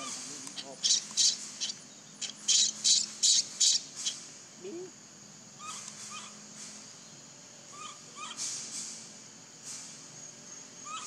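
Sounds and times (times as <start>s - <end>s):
harsh high bird squawks: 0.0s - 4.2s, 5.6s - 6.4s, 7.7s - 8.4s
soft bird chirps: 0.0s - 4.9s.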